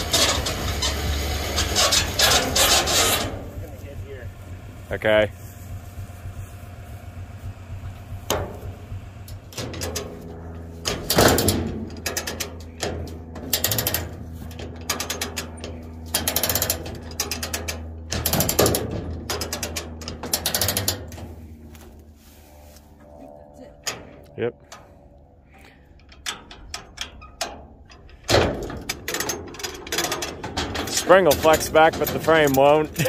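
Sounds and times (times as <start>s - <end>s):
engine idling: 0.0s - 33.0s
ratchet clicking: 14.8s - 21.2s.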